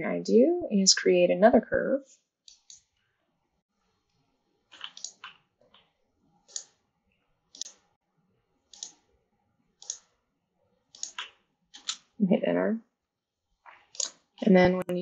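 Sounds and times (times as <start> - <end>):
computer mouse buttons clicking: 2.5 - 2.9, 4.8 - 5.3, 6.5 - 6.8, 8.7 - 9.0, 9.8 - 10.1, 10.9 - 12.1.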